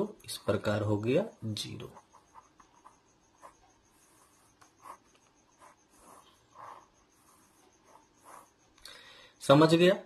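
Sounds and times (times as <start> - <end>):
pen scratching on paper: 1.8 - 8.8.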